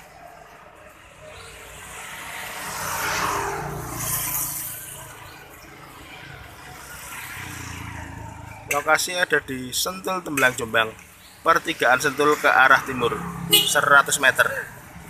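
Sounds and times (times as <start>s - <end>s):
motor vehicle passing: 0.0s - 9.8s, 10.6s - 15.0s
traffic hum: 0.0s - 15.0s.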